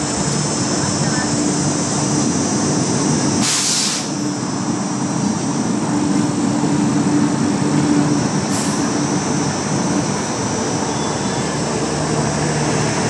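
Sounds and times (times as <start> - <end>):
electric locomotive rumbling past: 0.0 - 13.0
short hiss: 3.4 - 4.1.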